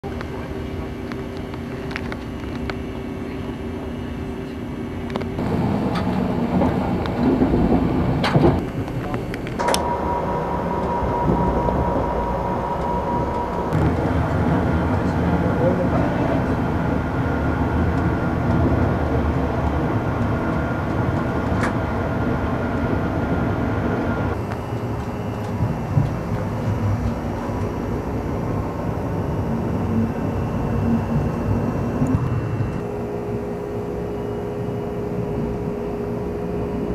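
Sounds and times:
train wheels rumbling on rail: 0.2 - 32.8
faint steady hum: 8.6 - 18.3.

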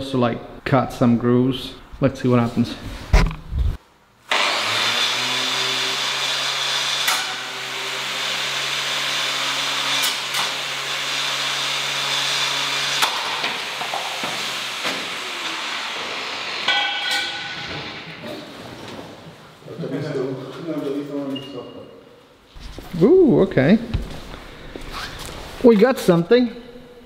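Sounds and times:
angle grinder running: 4.3 - 16.7.

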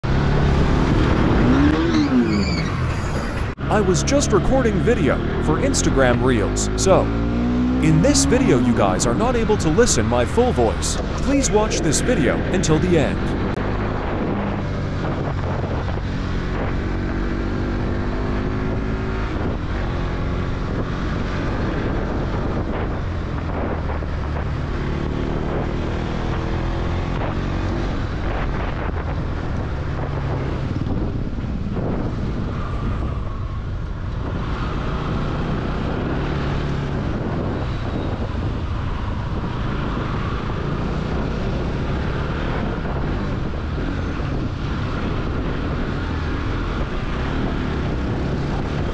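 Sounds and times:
wind noise on microphone: 12.2 - 48.9.

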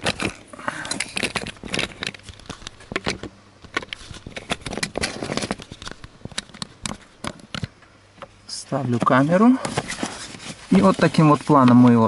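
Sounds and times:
paper rustling: 0.0 - 7.7, 8.8 - 12.0
camera handling clicks and knocks: 1.1 - 8.3.

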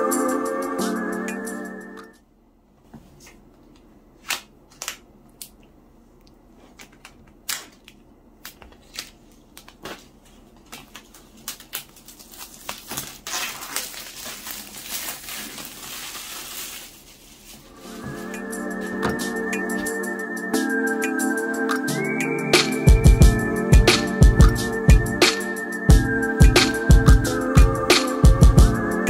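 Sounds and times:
plastic wrapping crinkling: 6.6 - 18.3.

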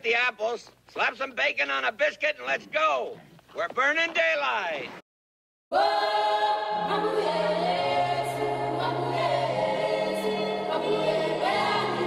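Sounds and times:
choir singing held chords: 5.7 - 12.0.

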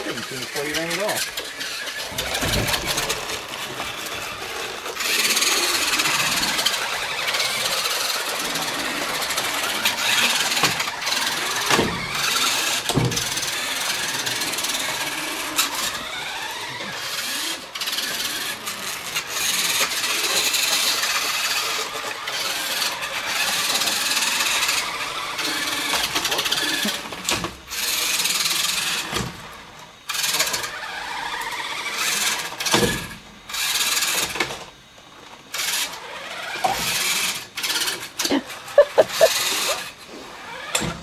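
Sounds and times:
toy truck motors whining: 0.0 - 41.0.

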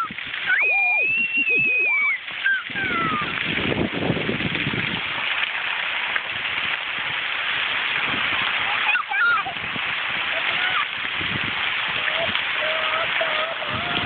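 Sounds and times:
child squealing: 0.0 - 3.4, 8.8 - 9.5, 12.2 - 14.0
fountain water jets hissing: 0.0 - 14.0.

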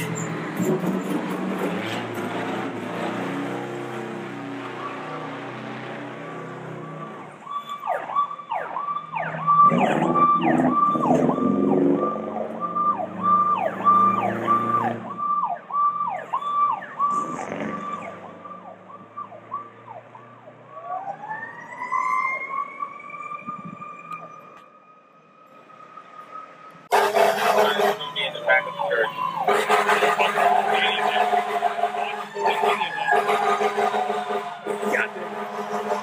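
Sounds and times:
fire truck siren: 0.0 - 36.0.

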